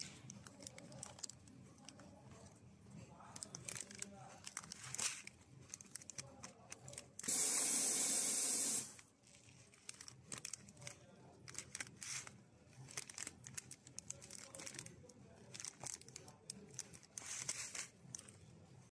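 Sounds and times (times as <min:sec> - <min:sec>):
plastic bag crinkling: 0:00.0 - 0:02.2, 0:03.4 - 0:07.3, 0:09.0 - 0:18.9
loud steady hiss: 0:07.3 - 0:09.0.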